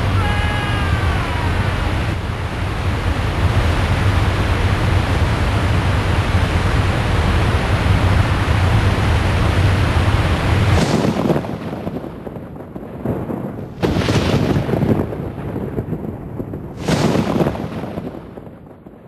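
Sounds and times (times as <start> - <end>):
waterfall rushing: 0.0 - 11.3
deep low rumble: 0.0 - 19.0.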